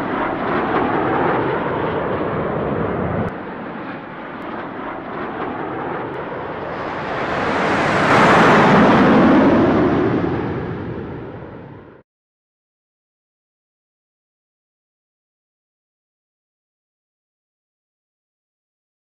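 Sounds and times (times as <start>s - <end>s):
airplane engine rush: 0.0s - 12.0s.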